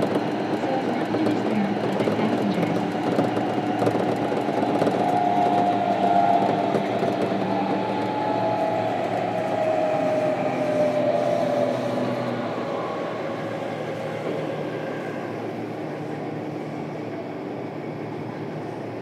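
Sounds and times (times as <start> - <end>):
wheel and track rumble: 0.0 - 19.0
traction motor whine: 2.8 - 15.8.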